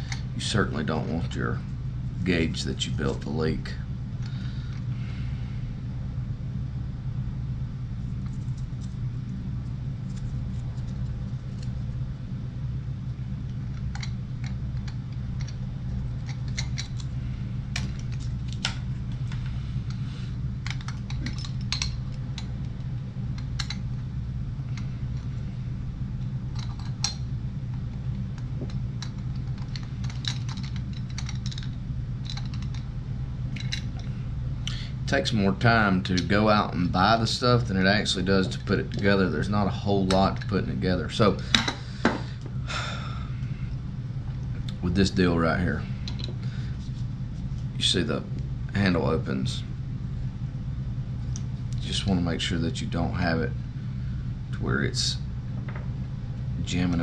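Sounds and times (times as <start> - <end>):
steady low hum: 0.0 - 57.0
clinks of brass pipe fittings: 20.6 - 22.5.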